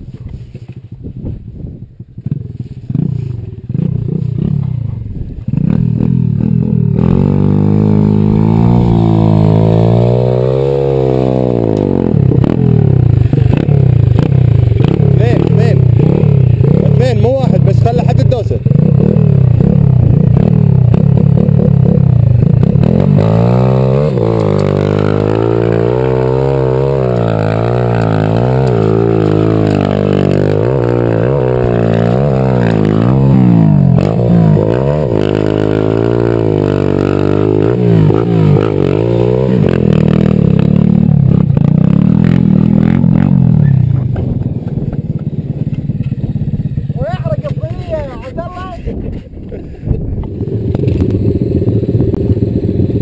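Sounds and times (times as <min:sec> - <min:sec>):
motorbike engine revving: 0:00.6 - 0:53.0.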